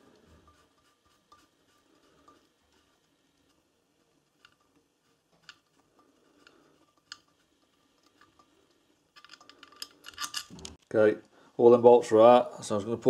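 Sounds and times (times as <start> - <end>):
small metal bolts clicking: 9.1 - 10.8.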